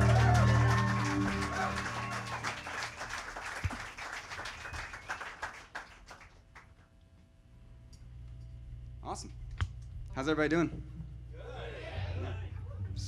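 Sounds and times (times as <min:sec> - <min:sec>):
small audience applauding: 0:00.0 - 0:06.9.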